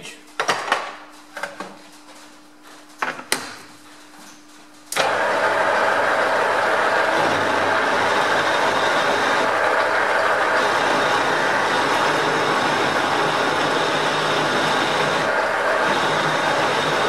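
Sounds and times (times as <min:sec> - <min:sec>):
metal lathe running: 0:05.0 - 0:17.0.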